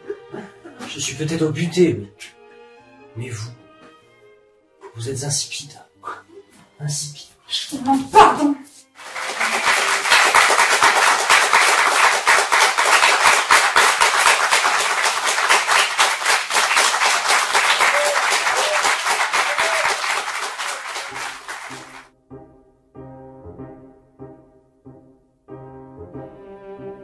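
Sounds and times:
audience applauding: 8.9 - 22.1.

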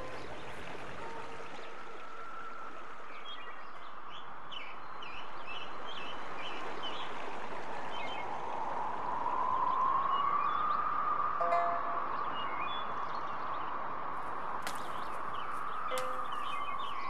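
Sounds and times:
bird chirping: 14.6 - 17.0.

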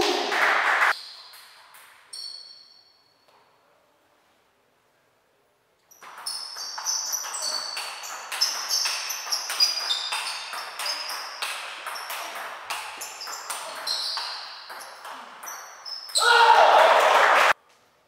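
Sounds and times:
table tennis ball hits: 5.9 - 16.1.

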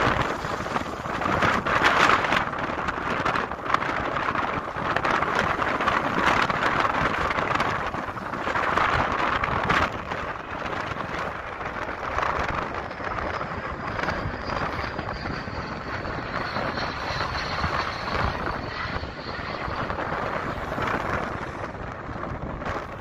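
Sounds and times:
jet airliner passing overhead: 0.0 - 23.0.

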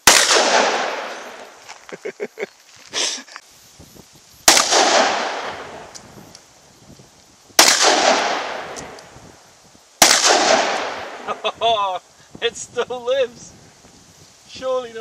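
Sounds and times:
handgun shots echoing: 0.0 - 1.4, 4.5 - 5.7, 7.6 - 9.0, 10.0 - 11.2.

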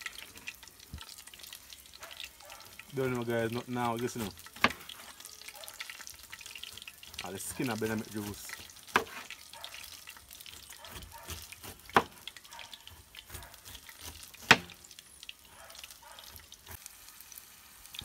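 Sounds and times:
knife cutting pineapple peel: 13.2 - 14.8.

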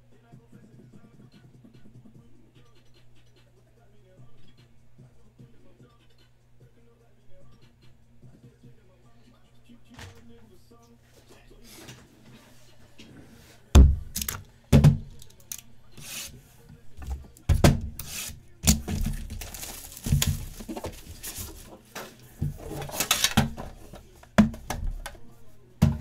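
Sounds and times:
packaging rustling and tearing: 18.7 - 21.7.

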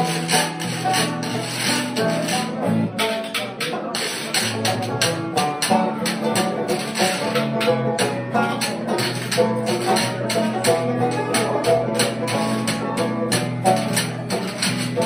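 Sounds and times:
picked banjo: 0.0 - 15.0
strummed acoustic guitar: 0.0 - 15.0
washboard scraping and taps: 0.0 - 15.0.

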